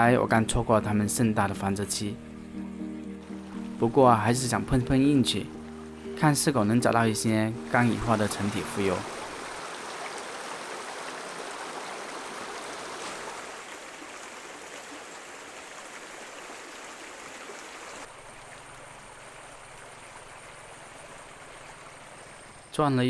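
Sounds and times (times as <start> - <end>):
creek running over stones: 7.6 - 22.7.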